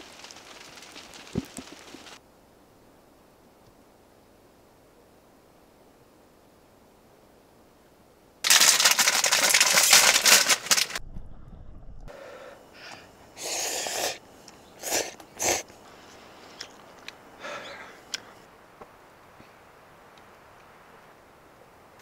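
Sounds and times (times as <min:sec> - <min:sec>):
person slurping noodles: 0:13.4 - 0:14.2, 0:14.8 - 0:15.6.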